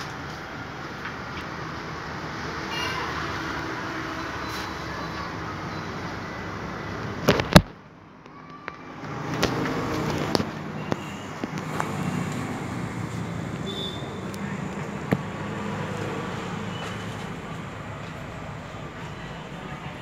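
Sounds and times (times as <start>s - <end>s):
road traffic noise: 0.0s - 20.0s.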